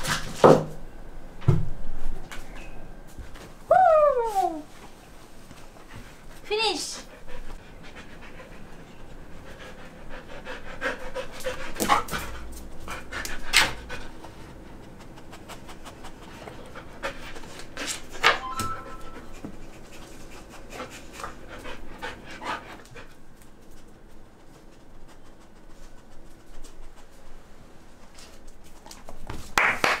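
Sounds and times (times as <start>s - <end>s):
dog panting and sniffing: 5.5s - 18.4s, 19.0s - 29.2s.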